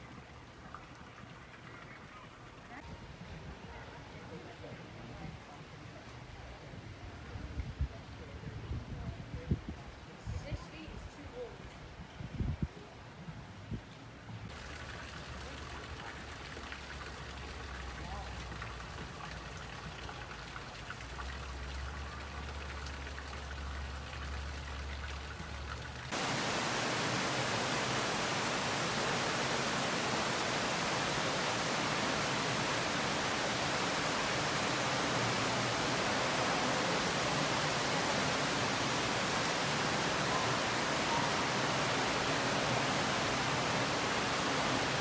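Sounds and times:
water rushing in fish tank: 14.5s - 45.0s.

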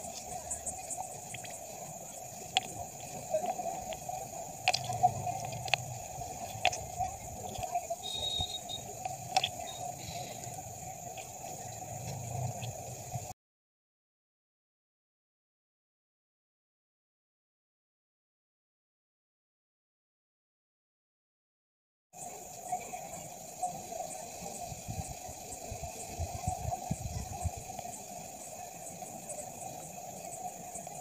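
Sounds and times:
water splashing and dripping: 0.0s - 13.3s
wet snail shells clicking: 3.8s - 6.8s, 7.5s - 9.6s.

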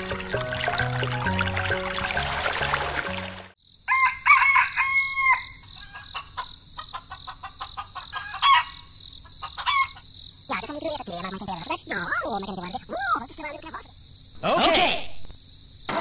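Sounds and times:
insects chirring: 3.5s - 16.0s
rooster crowing: 3.9s - 6.2s, 8.1s - 8.8s.

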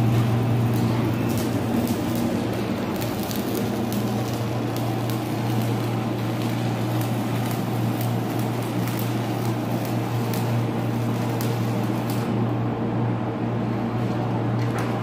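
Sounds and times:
welding arc crackling and popping: 0.0s - 12.6s.

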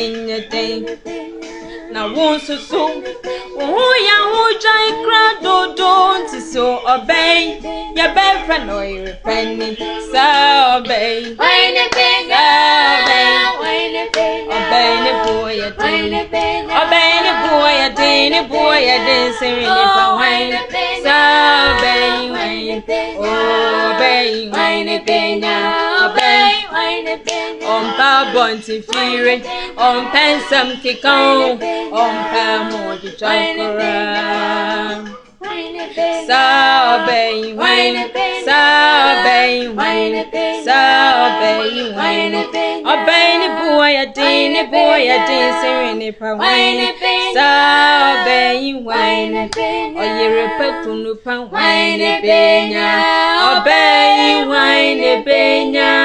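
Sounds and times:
women singing a cappella: 0.0s - 56.0s
hand claps: 11.8s - 12.2s, 13.0s - 13.3s, 14.1s - 14.4s, 26.2s - 26.5s, 27.2s - 27.6s, 28.9s - 29.2s, 49.5s - 49.8s.

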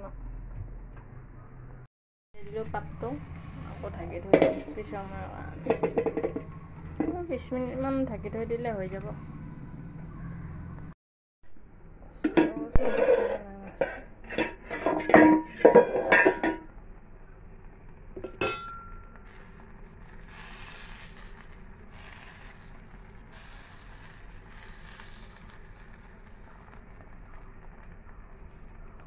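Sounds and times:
metal lid clanking on pan: 4.3s - 4.8s, 5.6s - 7.2s, 12.3s - 16.7s.

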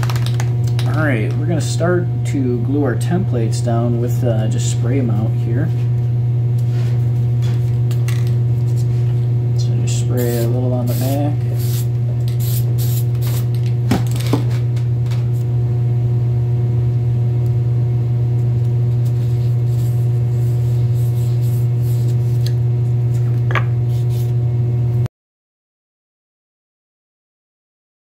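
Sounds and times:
steady low hum: 0.0s - 25.1s
spray can hissing: 10.2s - 13.5s.

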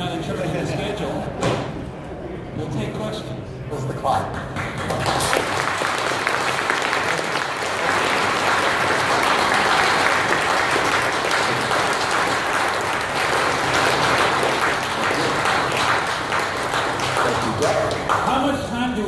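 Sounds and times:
audience applauding: 4.4s - 18.6s.

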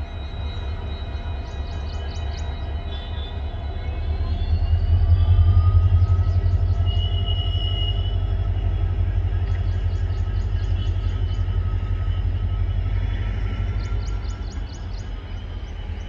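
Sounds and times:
diesel locomotive engines rumbling: 0.0s - 16.0s
steady whine: 0.0s - 16.0s.

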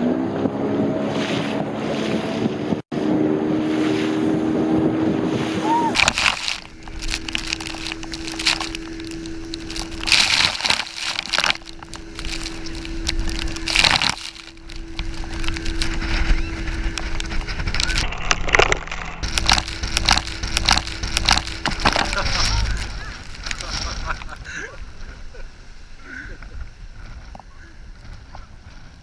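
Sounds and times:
water spray and wind on microphone: 0.0s - 29.0s
low steady hum: 5.9s - 28.9s.

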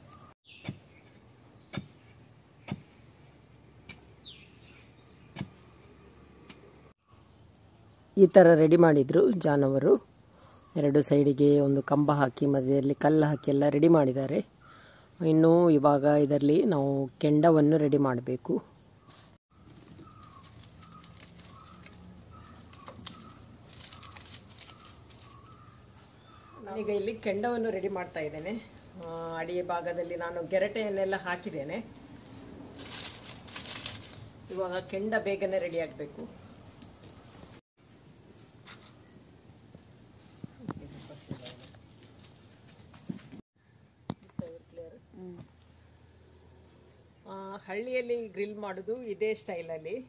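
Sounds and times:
faint bird chirp: 0.0s - 5.6s, 7.0s - 8.4s, 10.0s - 12.2s, 18.7s - 28.8s
coconut shells and sticks clicking: 19.7s - 25.4s.

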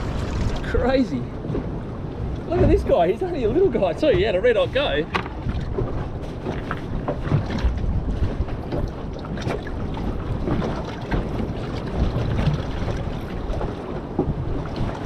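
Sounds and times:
water slapping against boat hull: 0.0s - 15.0s
wind buffeting microphone: 0.0s - 15.0s.

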